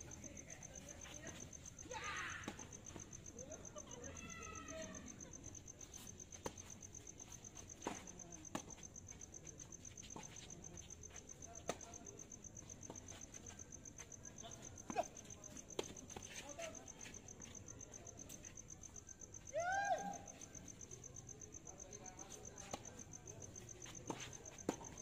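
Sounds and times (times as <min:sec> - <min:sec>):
crickets chirping: 0:00.0 - 0:25.0.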